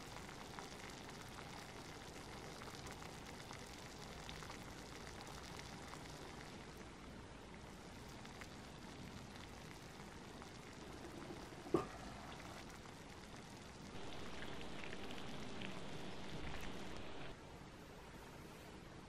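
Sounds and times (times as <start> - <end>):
rice simmering crackle: 0.0 - 17.4
cast-iron lid clank: 11.7 - 12.0.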